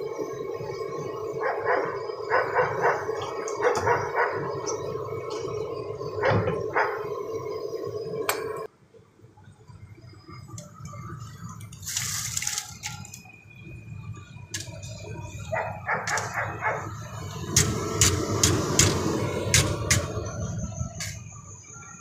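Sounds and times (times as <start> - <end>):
hot oil bubbling: 0.0 - 8.7, 9.7 - 21.4.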